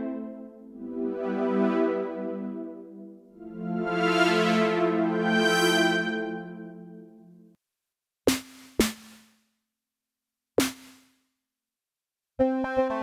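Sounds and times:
synth pad chord: 0.0s - 7.2s
percussive synth hits: 8.3s - 9.4s, 10.6s - 11.1s.

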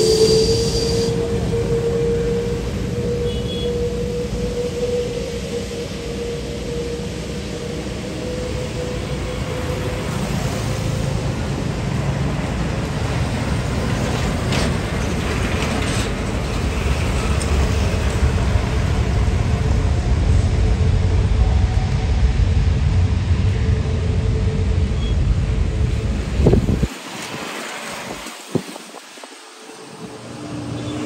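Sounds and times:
steady engine tone: 0.0s - 13.4s, 17.2s - 26.9s
jet engine rumble: 0.0s - 31.0s.

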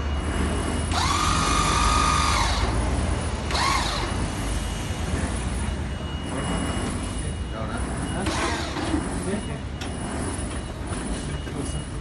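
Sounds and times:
electric motor whining: 0.9s - 2.9s, 3.5s - 4.3s.

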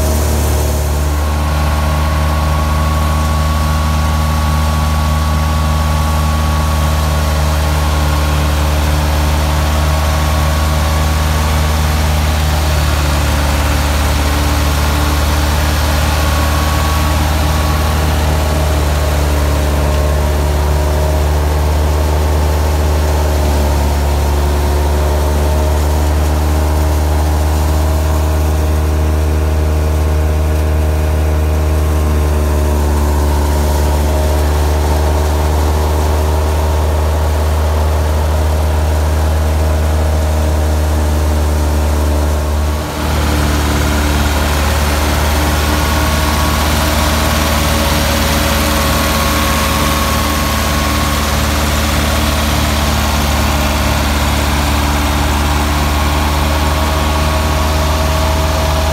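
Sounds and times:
diesel engine running under load: 0.0s - 58.9s
thresher drum and pulleys turning: 42.2s - 58.9s.

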